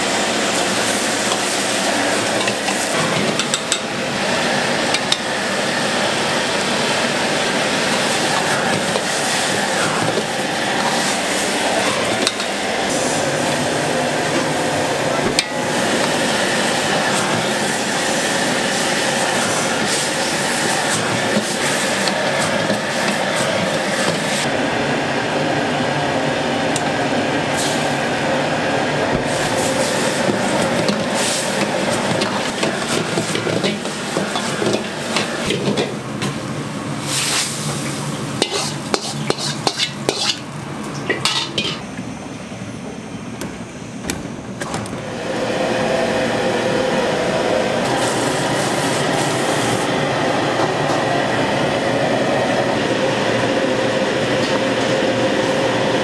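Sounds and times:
food sizzling in a wok: 0.0 - 14.9, 15.6 - 24.5, 27.5 - 28.2, 29.3 - 35.7, 37.0 - 40.5, 47.8 - 49.9
steady roaring noise: 0.0 - 39.0, 40.4 - 56.0
metal ladle scraping a wok: 38.4 - 40.4.

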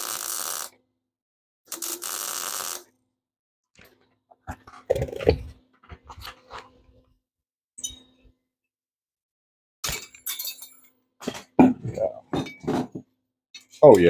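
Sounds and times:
metal tools clattering: 9.9 - 13.0.

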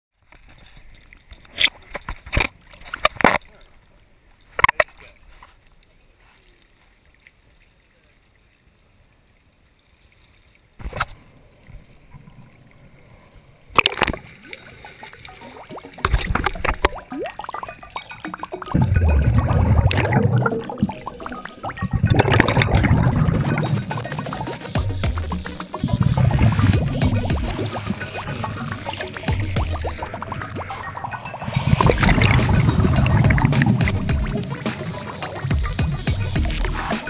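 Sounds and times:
water splashing against camera: 0.2 - 7.7, 10.1 - 13.0, 13.7 - 37.0
underwater regulator bubbling: 13.7 - 37.0.

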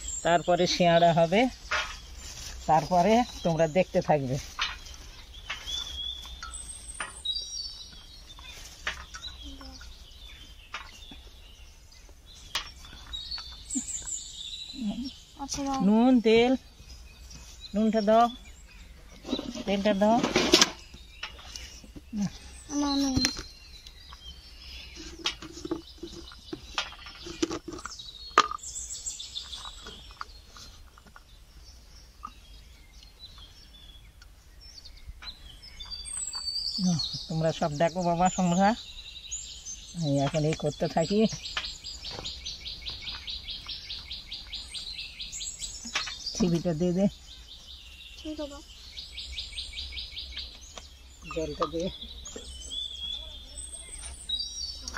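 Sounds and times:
birds calling: 0.0 - 54.9
plastic jar handled: 24.9 - 28.7.

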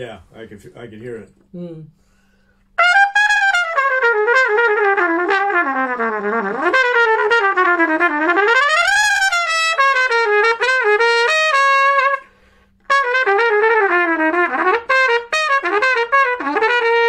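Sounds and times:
trumpet playing a phrase: 2.8 - 12.2, 12.9 - 17.0.

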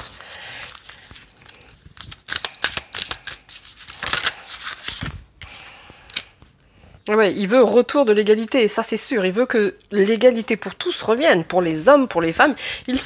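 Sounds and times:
cards being shuffled: 0.0 - 5.2.

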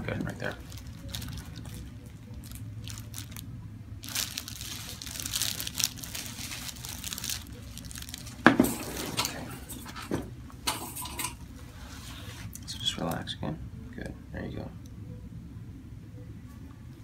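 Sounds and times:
soft rustling and crinkling: 0.1 - 3.4, 4.0 - 10.1.

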